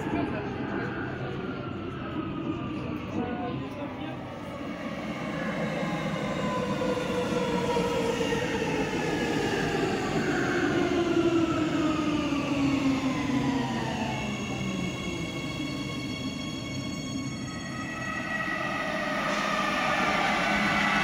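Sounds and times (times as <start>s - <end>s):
train wheels rumbling: 4.1s - 21.0s
steady high tones: 15.4s - 21.0s.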